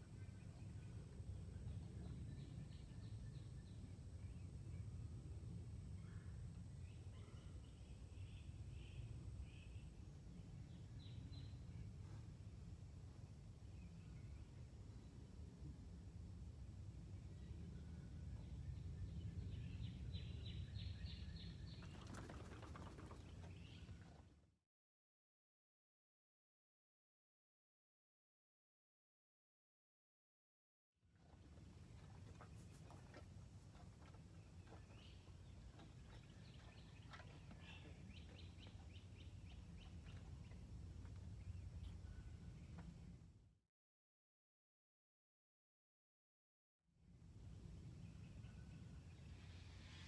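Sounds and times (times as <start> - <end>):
low steady rumble: 0.0 - 22.0, 31.2 - 43.4
horse shaking its head: 21.9 - 23.5.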